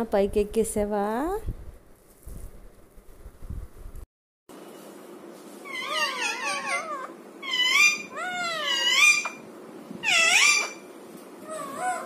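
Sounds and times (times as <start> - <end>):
parakeet warbling whining calls: 5.6 - 10.9.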